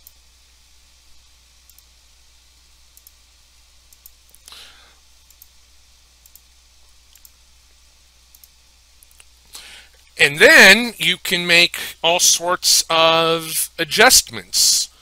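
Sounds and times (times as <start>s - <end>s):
low steady hum: 0.0s - 15.0s
short breath: 4.5s - 5.0s, 9.5s - 10.0s.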